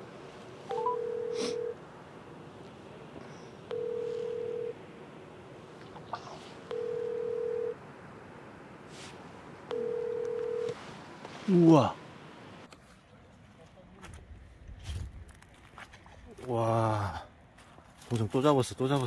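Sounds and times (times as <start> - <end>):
telephone ringback tone: 0.7 - 1.8, 3.7 - 4.8, 6.7 - 7.8, 9.7 - 10.8.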